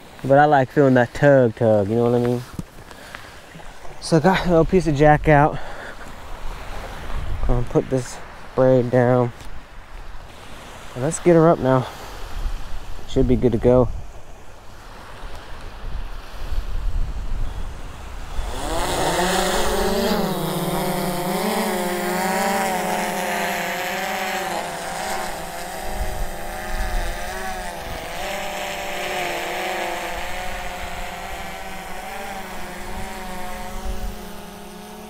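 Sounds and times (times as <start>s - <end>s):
drone propellers buzzing: 17.5s - 35.0s.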